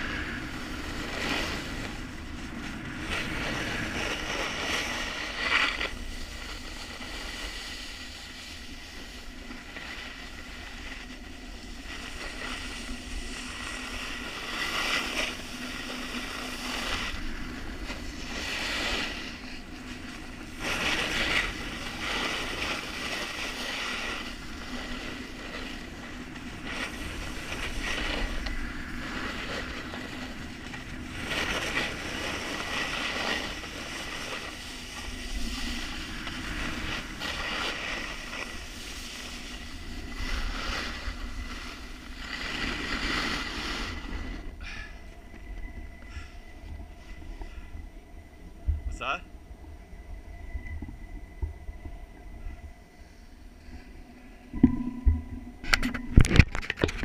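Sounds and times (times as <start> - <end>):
snowboard hissing on snow: 0.0 - 45.1
wind on microphone: 0.0 - 57.0.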